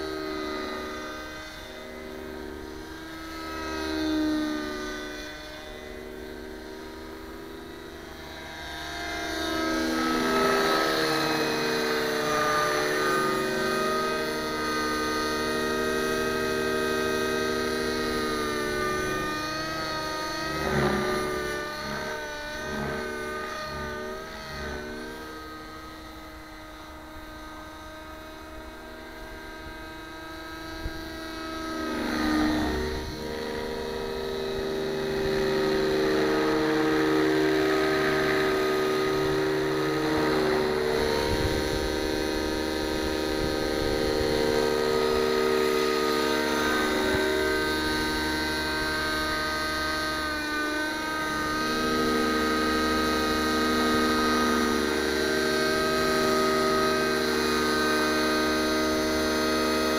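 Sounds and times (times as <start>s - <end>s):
model helicopter engine and rotors: 0.0s - 59.9s.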